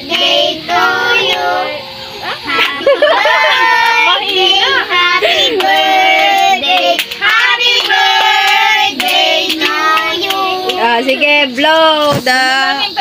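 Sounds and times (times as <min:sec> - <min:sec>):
hand claps: 0:05.5 - 0:10.9.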